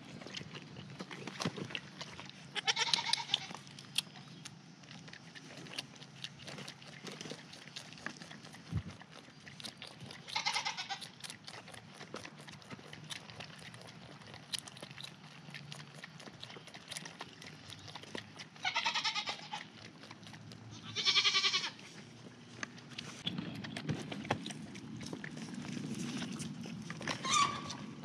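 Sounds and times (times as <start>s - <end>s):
goat kids bleating: 2.5s - 3.6s, 10.2s - 11.1s, 18.6s - 19.7s, 20.7s - 21.8s.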